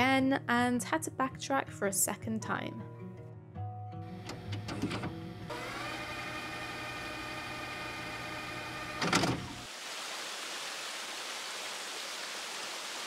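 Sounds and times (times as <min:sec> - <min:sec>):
waterfall trickling over rocks: 0:09.7 - 0:13.0.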